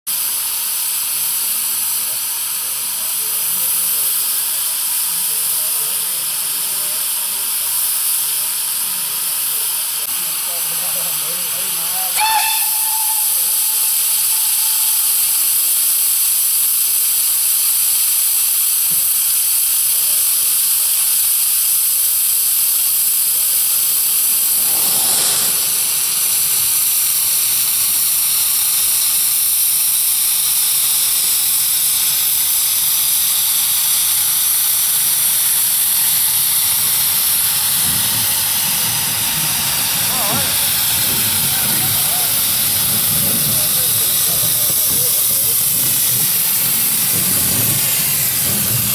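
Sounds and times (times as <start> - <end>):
steam blasting from drain cocks: 0.1 - 48.9
steam locomotive hissing: 0.1 - 48.9
steam whistle: 11.9 - 14.2.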